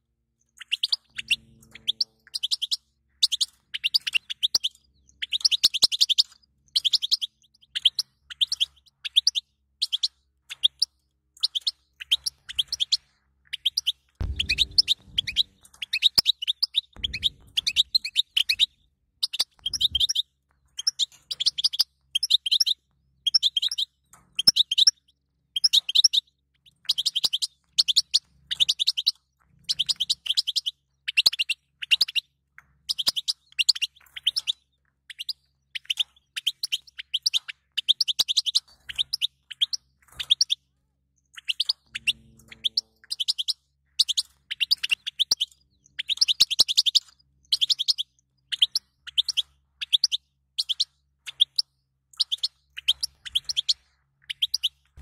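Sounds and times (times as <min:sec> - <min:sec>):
goldfinch twittering: 0:00.6 - 0:10.1, 0:13.7 - 0:20.2, 0:41.4 - 0:50.8.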